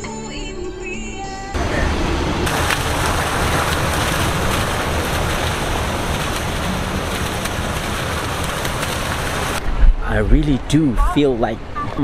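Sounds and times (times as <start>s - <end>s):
wind rumbling on microphone: 1.6s - 11.9s
fountain jets splashing into pool: 2.4s - 9.6s.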